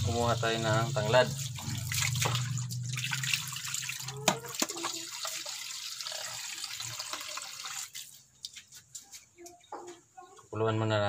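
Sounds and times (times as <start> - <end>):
metal pot being rinsed: 0.0 - 8.2
tap water running and splashing: 0.0 - 8.9.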